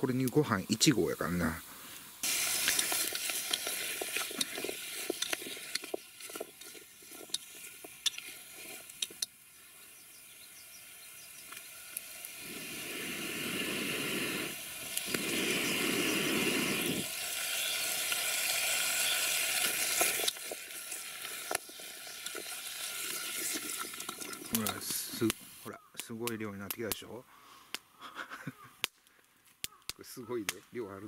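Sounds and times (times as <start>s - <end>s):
food sizzling in a pot: 0.1s - 25.7s.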